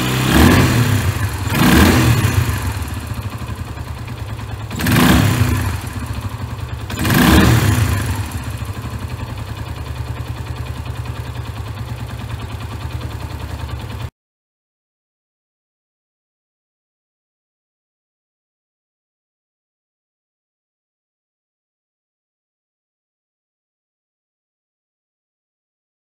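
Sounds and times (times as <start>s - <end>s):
motorcycle engine revving and idling: 0.0s - 14.1s.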